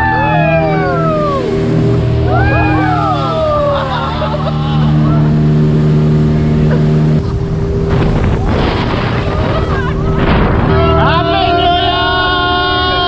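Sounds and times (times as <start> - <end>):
speedboat engine droning: 0.0 - 13.0
water rushing: 0.0 - 13.0
water splashing: 0.0 - 13.0
wind rushing: 7.5 - 11.2.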